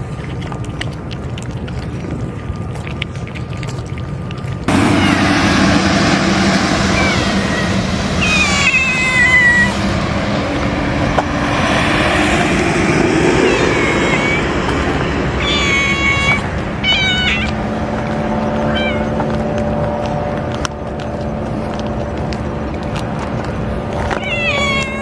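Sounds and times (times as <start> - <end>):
steady background hum: 0.0 - 25.0
kitten meowing: 7.0 - 9.8, 13.4 - 14.6, 15.4 - 17.6, 18.7 - 19.2, 24.1 - 25.0.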